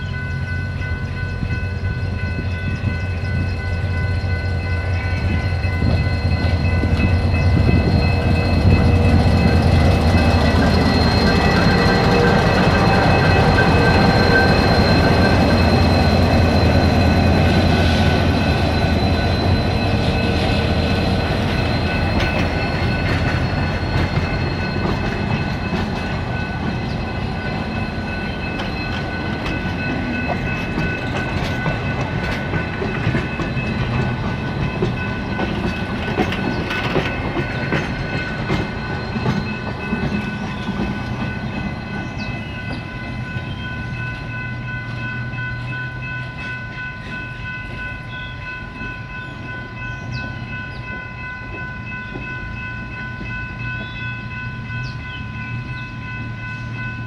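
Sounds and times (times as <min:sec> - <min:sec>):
steady high tones: 0:00.0 - 0:57.0
wheels clacking over rails: 0:04.6 - 0:43.0.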